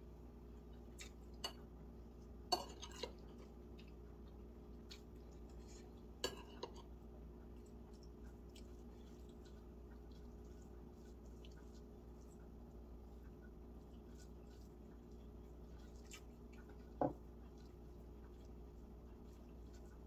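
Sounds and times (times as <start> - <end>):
low steady hum: 0.0 - 20.0
soft chewing: 0.1 - 20.0
utensils clinking against a dish: 2.5 - 3.2, 6.2 - 6.9.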